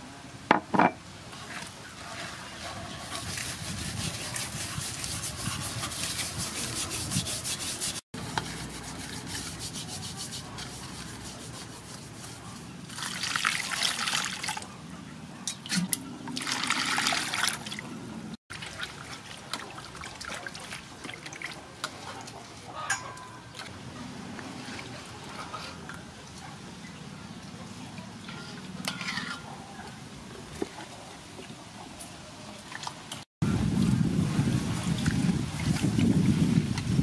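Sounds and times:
water splashing in a basin: 12.9s - 14.6s, 15.6s - 17.9s, 18.5s - 22.4s.

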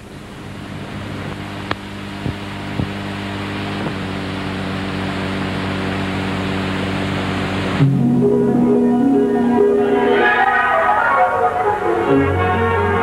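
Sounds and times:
steady hiss: 0.0s - 7.8s
low hum: 0.0s - 13.0s.

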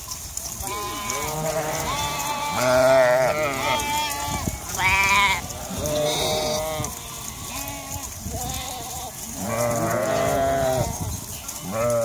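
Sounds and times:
sheep bleating: 0.6s - 11.0s, 11.6s - 12.0s.

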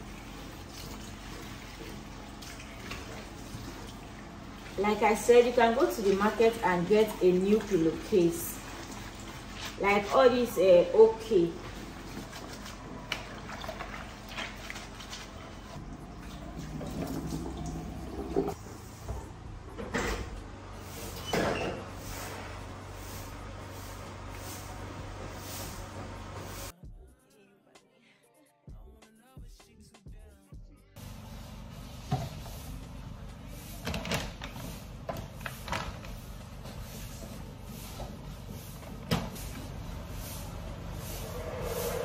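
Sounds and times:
steady low hum: 0.0s - 26.7s, 31.0s - 42.0s
tap water running into sink: 15.8s - 19.2s
door squeak: 21.2s - 21.9s.

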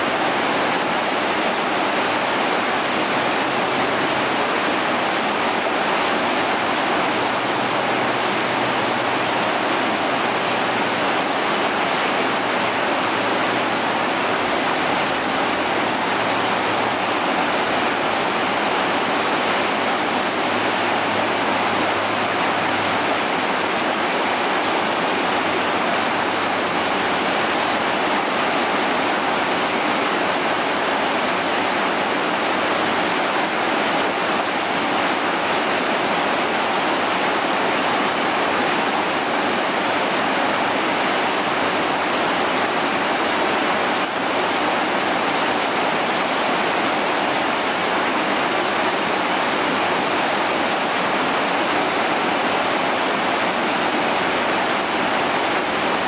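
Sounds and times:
river rapids rushing over rocks: 0.0s - 56.0s.

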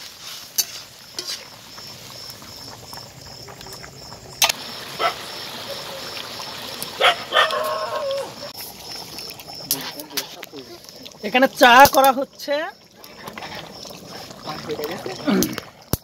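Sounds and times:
wood fire clicks and crackles: 0.0s - 4.8s, 8.2s - 16.0s
curry bubbling at a simmer: 0.0s - 16.0s.

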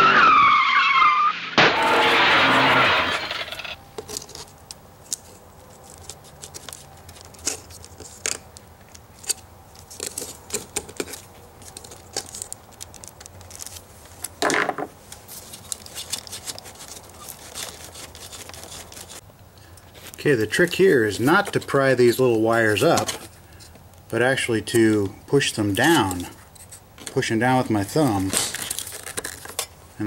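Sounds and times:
scraping rustle: 15.0s - 19.2s.

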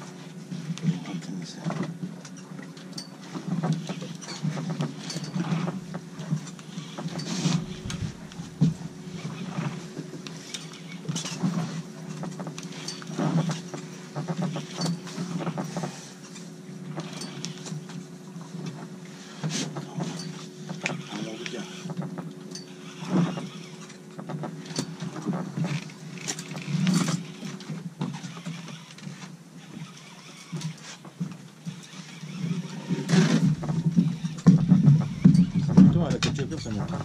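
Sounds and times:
boat engine idling: 7.5s - 10.5s, 33.2s - 37.0s.

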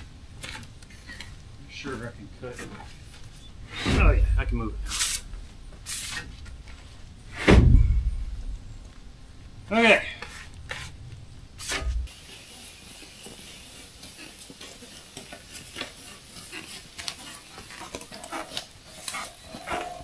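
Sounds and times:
steady hiss: 1.6s - 16.4s
low thump: 7.4s - 8.6s
faint ticks and rustling: 12.6s - 20.0s.

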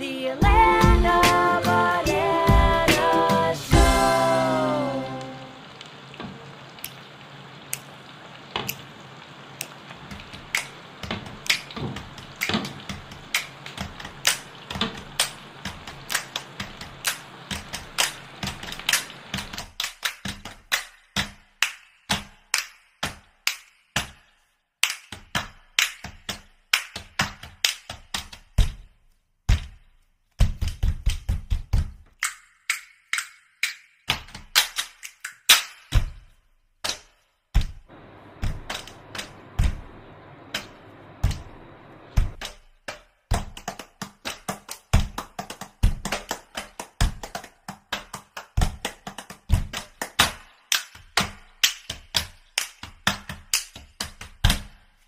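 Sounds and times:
chips sizzling in hot oil: 3.0s - 20.4s.

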